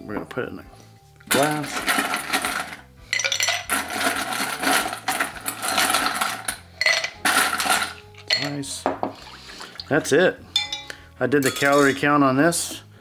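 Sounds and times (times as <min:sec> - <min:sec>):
ice cubes clinking into glass: 0:01.3 - 0:08.8, 0:10.6 - 0:12.0.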